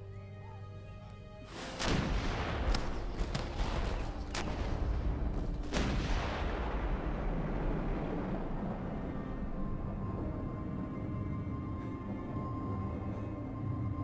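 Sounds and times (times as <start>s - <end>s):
continuous low rumble: 0.6s - 14.0s
cannon booms: 1.8s - 8.2s.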